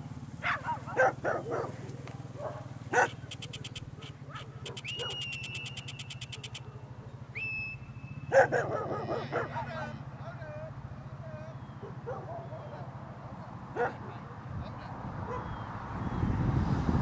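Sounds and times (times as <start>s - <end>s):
dog barking: 0.4s - 7.2s, 8.3s - 10.0s, 11.8s - 12.9s, 13.7s - 14.4s, 15.2s - 15.6s
cattle calling: 2.9s - 7.1s, 7.8s - 12.9s
fast high ticks: 3.0s - 6.7s
high whistled tones: 4.7s - 6.6s, 7.3s - 8.3s.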